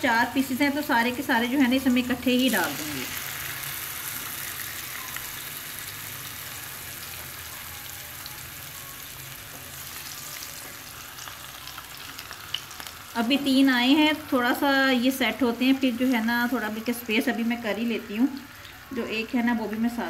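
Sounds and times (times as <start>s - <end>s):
chicken sizzling in oil: 0.0s - 20.0s.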